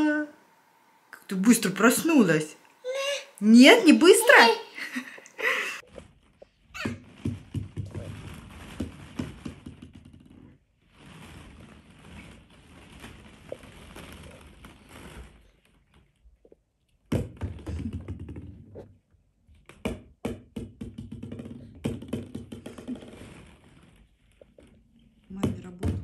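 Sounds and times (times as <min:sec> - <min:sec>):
plastic balls rustling and clacking: 0:05.8 - 0:26.0.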